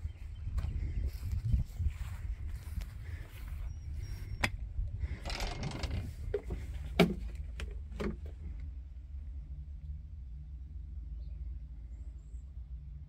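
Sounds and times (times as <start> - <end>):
door scraping: 5.2 - 7.2
knocks and thumps: 5.2 - 8.3.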